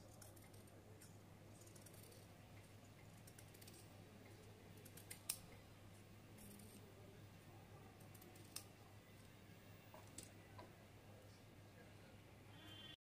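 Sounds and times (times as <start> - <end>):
scissors snipping fabric: 4.8 - 5.4.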